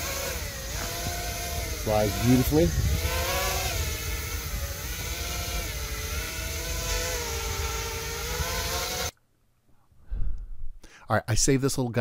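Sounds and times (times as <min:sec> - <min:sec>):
quadcopter motors whining: 0:00.0 - 0:09.1.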